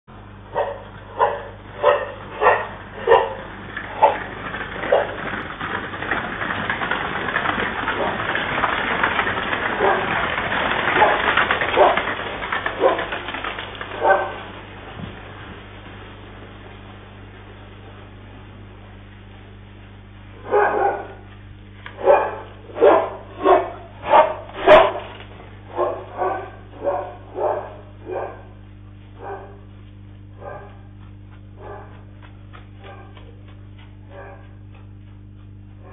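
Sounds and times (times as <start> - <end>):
low electrical hum: 0.1 - 35.9
dog barking: 0.5 - 3.4, 11.8 - 12.0, 12.8 - 13.1, 14.0 - 14.4, 20.4 - 21.3, 22.0 - 25.1, 25.7 - 28.6, 29.2 - 29.7, 30.4 - 31.0, 31.6 - 32.1, 32.8 - 33.4, 34.1 - 34.7
continuous clatter: 1.0 - 15.5.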